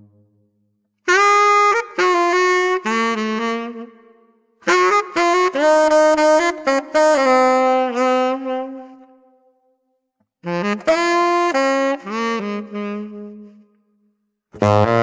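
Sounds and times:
jazz saxophone playing: 1.0 - 9.3, 10.4 - 13.7, 14.5 - 15.0.

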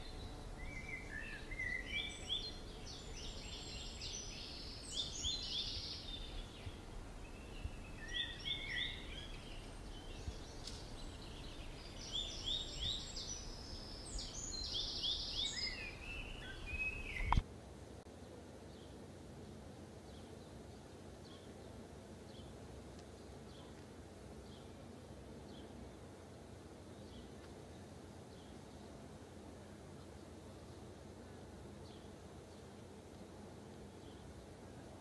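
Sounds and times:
small birds chirping: 0.0 - 17.4, 20.0 - 26.0, 33.7 - 35.0.

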